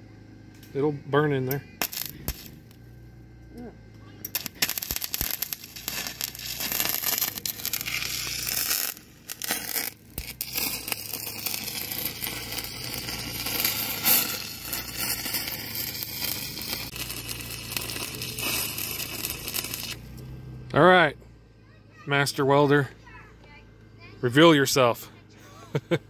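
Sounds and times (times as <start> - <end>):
welder arc crackling: 0.6 - 2.9, 3.5 - 20.3.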